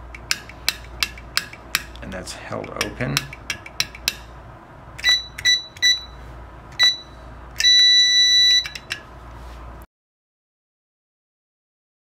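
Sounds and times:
keypad buzzer beeping: 5.0s - 6.2s, 6.8s - 8.9s.

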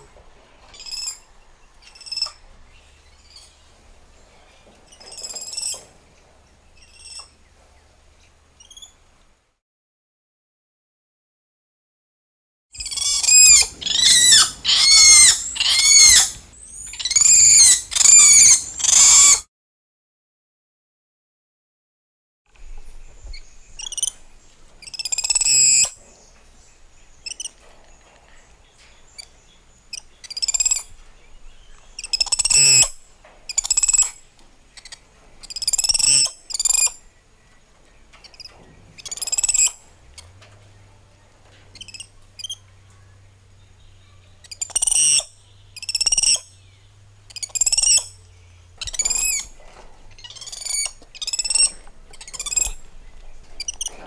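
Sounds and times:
monkeys squealing and chirping: 0.7s - 1.2s, 1.8s - 2.4s, 12.8s - 19.4s, 24.8s - 26.0s, 29.9s - 30.9s, 32.0s - 34.2s, 34.8s - 36.9s, 38.3s - 39.8s, 41.8s - 42.6s, 44.4s - 46.6s, 47.3s - 48.2s, 48.8s - 49.5s, 50.1s - 52.8s, 53.6s - 54.0s.

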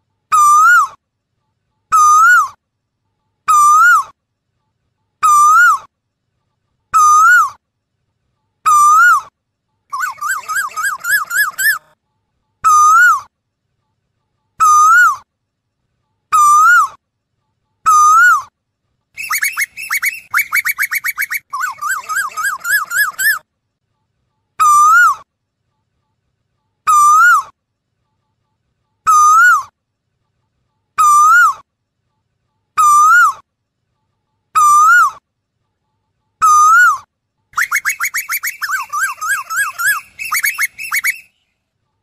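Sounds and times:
bird whistled calls: 9.9s - 11.8s, 19.2s - 23.4s, 29.1s - 29.7s, 34.6s - 35.2s, 36.4s - 37.0s, 37.6s - 41.4s.

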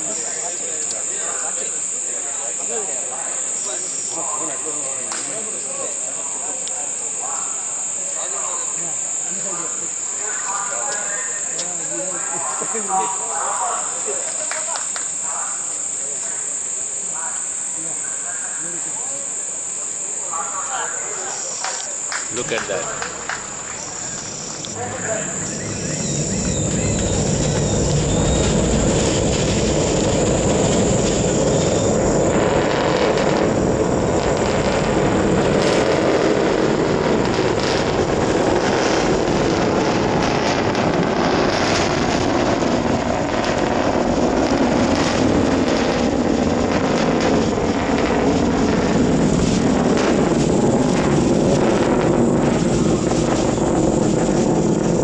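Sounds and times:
crickets chirping: 0.0s - 55.0s
rocket launch rumble: 21.9s - 55.0s.

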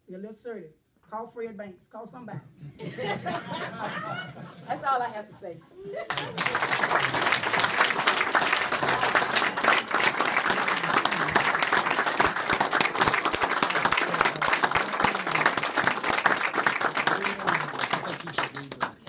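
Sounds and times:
small group applauding: 6.0s - 19.0s.

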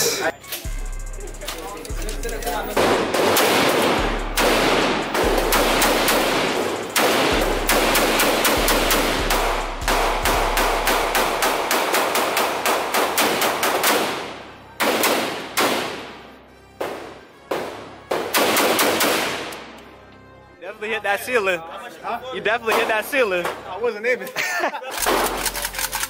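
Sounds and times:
rapid gunfire with echo: 2.7s - 16.2s, 17.5s - 19.5s.

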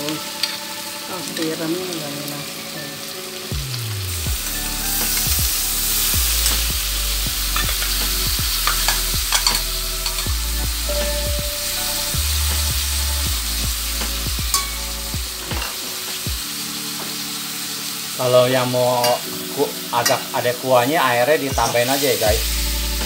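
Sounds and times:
potatoes sizzling in a wok: 0.0s - 23.0s
metal spatula scraping pan: 8.6s - 10.3s.

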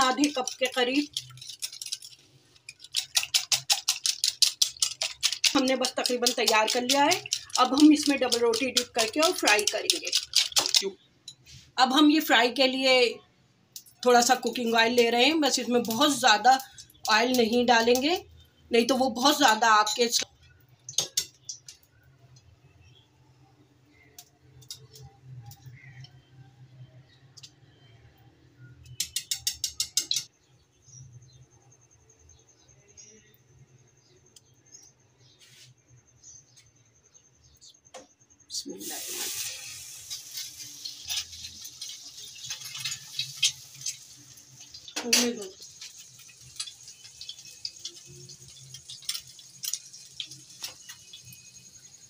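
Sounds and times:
bread squishing in egg: 0.0s - 10.8s
bread frying in hot oil: 0.0s - 10.9s, 13.8s - 22.9s, 38.7s - 52.0s.

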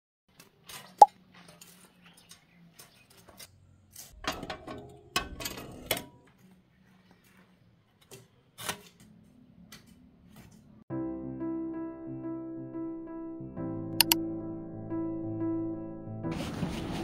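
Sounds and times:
sharp click: 14.0s - 14.2s.

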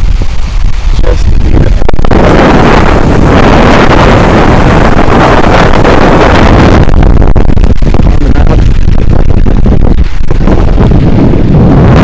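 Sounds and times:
water rushing over rock: 0.0s - 12.0s
wind buffeting microphone: 0.0s - 12.0s.

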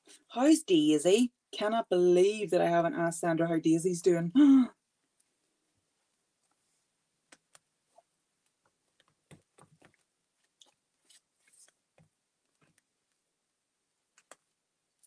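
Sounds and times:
paper rustling: 9.4s - 11.8s.

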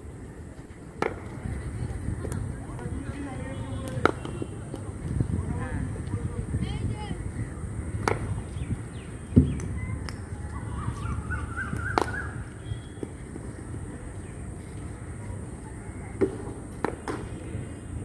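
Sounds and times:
cricket bat hitting ball: 3.9s - 4.4s, 8.0s - 8.4s, 11.8s - 12.4s, 16.2s - 17.4s.

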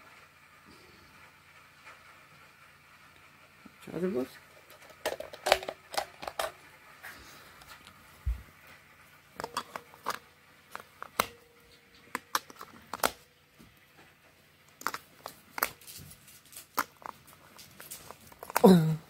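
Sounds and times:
batteries clicking into compartment: 4.7s - 6.6s, 9.4s - 11.4s, 12.0s - 13.2s.

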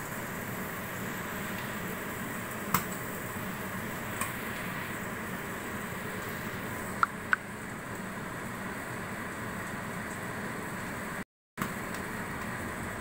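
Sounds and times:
steady hiss: 0.0s - 7.9s.

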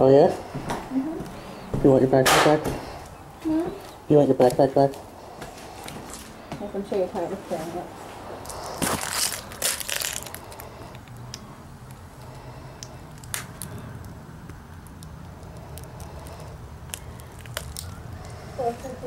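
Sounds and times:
faint clicks and crackles: 8.4s - 18.4s.

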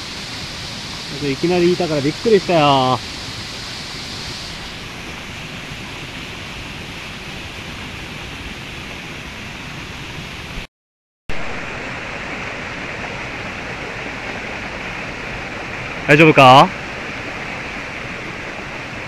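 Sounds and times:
stream water rushing: 0.0s - 10.7s, 11.3s - 19.0s.

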